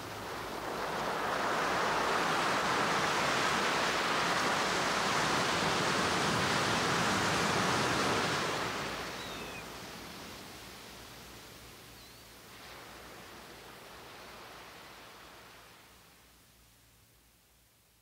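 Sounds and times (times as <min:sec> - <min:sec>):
ocean surf rushing: 0:00.0 - 0:09.8.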